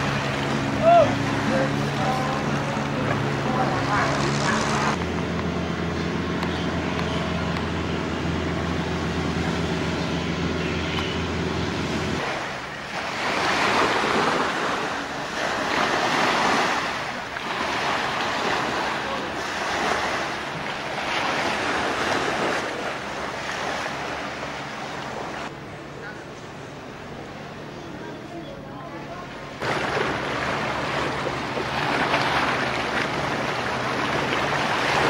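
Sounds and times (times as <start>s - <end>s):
small waves washing onto beach: 0.0s - 5.0s, 12.1s - 25.5s, 29.0s - 35.0s
boat engine running: 0.0s - 35.0s.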